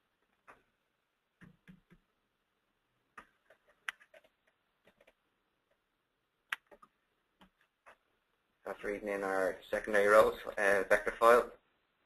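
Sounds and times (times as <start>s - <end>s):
computer mouse clicks: 3.2s - 5.8s.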